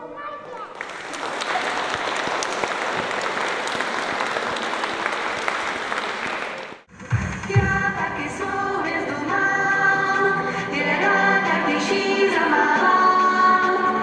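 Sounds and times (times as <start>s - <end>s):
audience applauding: 0.7s - 6.9s
music: 6.9s - 14.0s.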